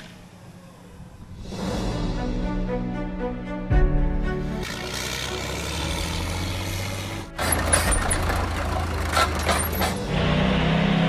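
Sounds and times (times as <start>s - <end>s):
truck engine and tyre noise: 0.0s - 1.6s, 4.4s - 11.0s
diesel engine running: 4.4s - 11.0s.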